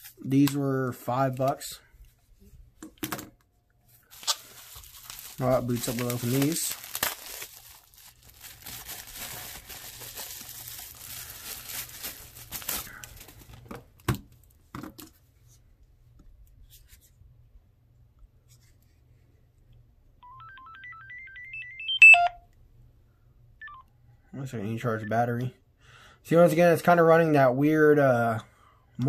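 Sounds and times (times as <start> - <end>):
bubble wrap crinkling: 4.0 - 13.7
phone power-on beeps: 20.2 - 22.4, 23.6 - 23.8.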